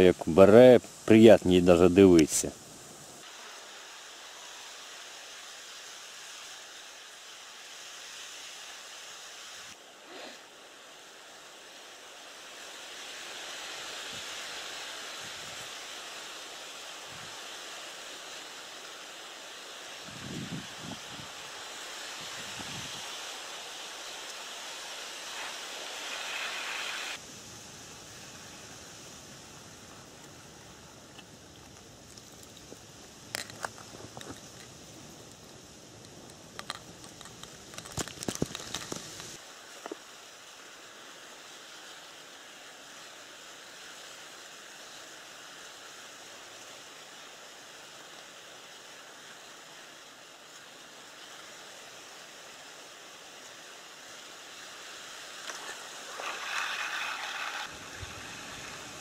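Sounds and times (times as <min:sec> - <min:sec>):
wind: 0:00.0 - 0:59.0
small waves on a lake: 0:02.3 - 0:59.0
clicks and rustles of handling fish: 0:31.6 - 0:34.8, 0:36.0 - 0:40.0.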